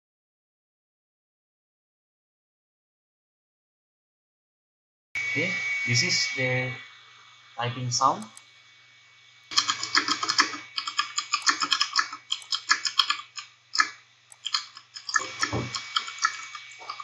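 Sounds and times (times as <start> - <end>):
steady low hum: 5.2 - 17.0.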